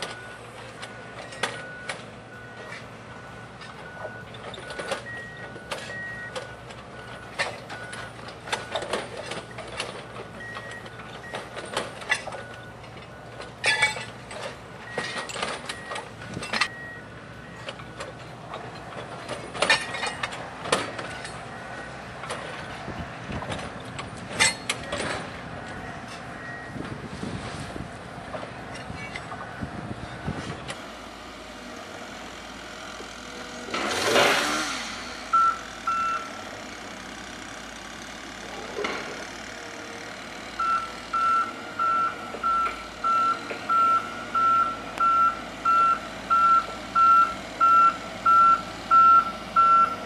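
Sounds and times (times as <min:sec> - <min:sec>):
two-tone warning beep: 0:01.2 - 0:08.8, 0:16.6 - 0:17.7, 0:25.8 - 0:26.8, 0:35.3 - 0:36.3, 0:40.6 - 0:50.0.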